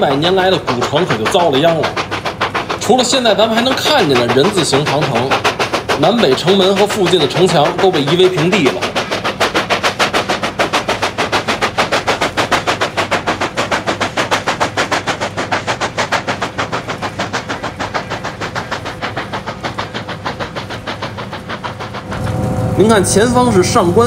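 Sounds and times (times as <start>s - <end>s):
train clattering: 0.0s - 24.0s
train low rumble: 0.0s - 24.0s.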